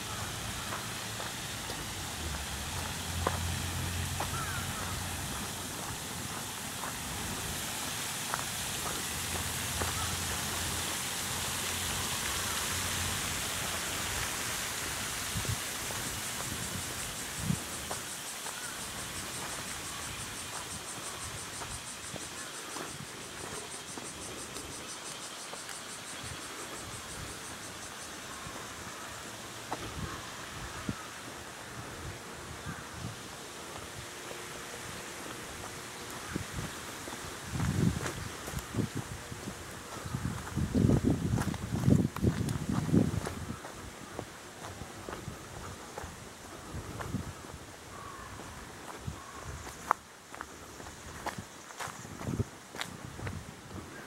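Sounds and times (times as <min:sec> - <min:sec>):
footsteps on dirt path: 0:00.0 - 0:10.6, 0:17.5 - 0:26.9, 0:33.6 - 0:54.0
cicadas buzzing: 0:00.0 - 0:54.0
outdoor hiss: 0:00.0 - 0:54.0.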